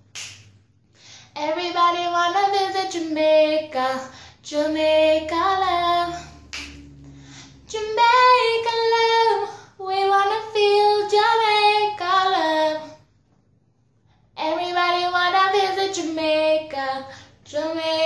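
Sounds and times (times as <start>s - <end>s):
woman singing unaccompanied: 1.4s - 6.6s, 7.6s - 13.0s, 14.4s - 18.0s.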